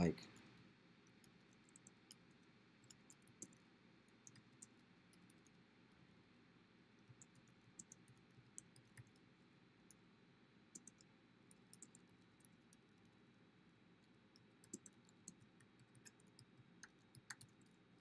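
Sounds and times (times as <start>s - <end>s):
keyboard typing: 10.8s - 12.5s, 14.6s - 17.8s.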